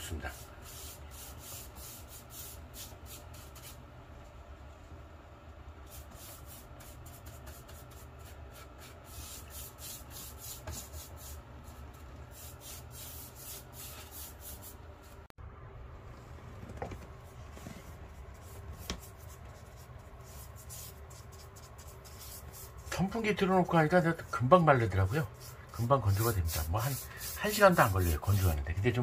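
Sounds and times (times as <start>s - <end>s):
paintbrush swishing on wood: 17.2s - 28.7s.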